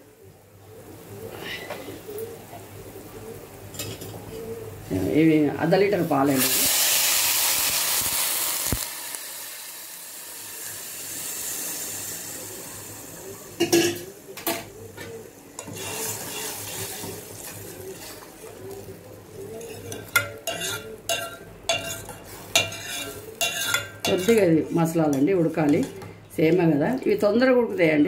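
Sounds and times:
milk sizzling in hot pot: 5.9 - 26.1
ladle scraping metal pot: 15.6 - 18.2, 19.5 - 26.1.

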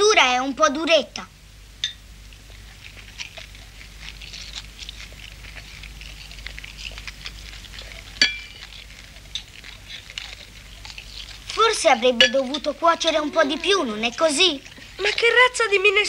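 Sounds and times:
cutlery clinking against dishes: 8.2 - 8.6, 12.2 - 12.5.

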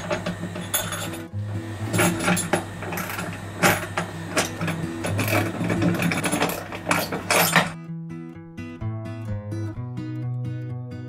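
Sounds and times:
hardware clicks and knocks: 0.0 - 1.3.

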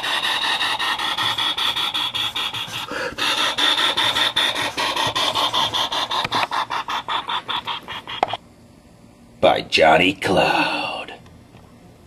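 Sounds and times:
marker scratching on paper: 0.0 - 8.4.

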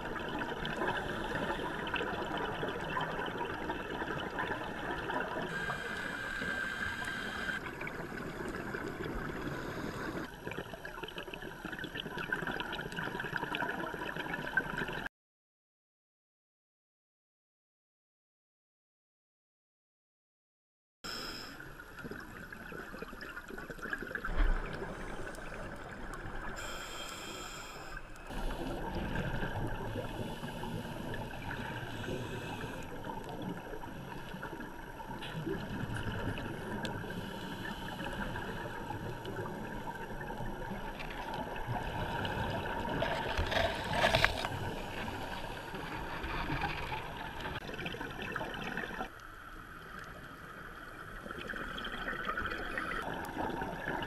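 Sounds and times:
underwater bubbling: 0.0 - 15.1, 21.3 - 54.0
scuba breathing hiss: 5.5 - 7.6, 9.3 - 10.3, 21.1 - 21.7, 24.9 - 28.8, 29.8 - 33.1, 37.0 - 39.1.

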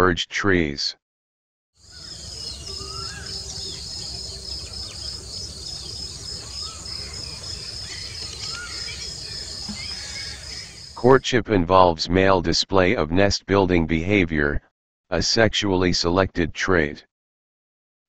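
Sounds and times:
bird chirps: 1.8 - 11.0
insects trilling: 1.8 - 11.0.

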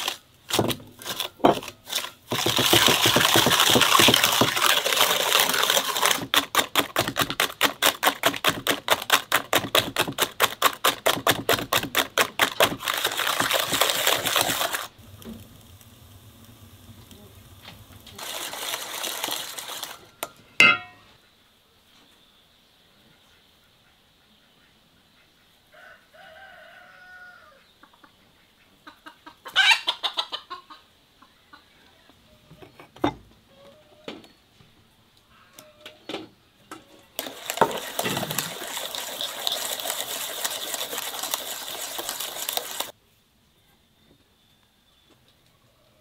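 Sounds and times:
chickens clucking: 27.7 - 32.6.

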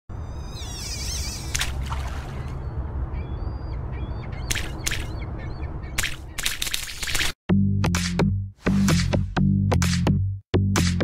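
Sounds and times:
wavering bird call: 0.3 - 6.0.

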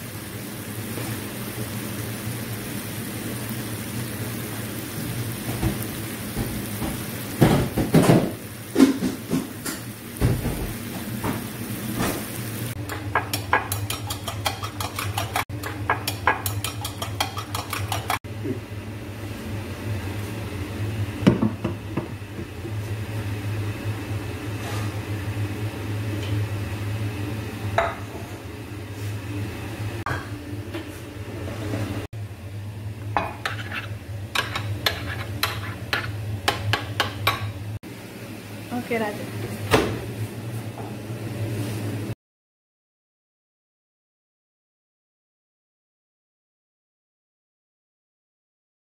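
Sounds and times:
metal spoon clinking on a pan: 12.9 - 18.2.

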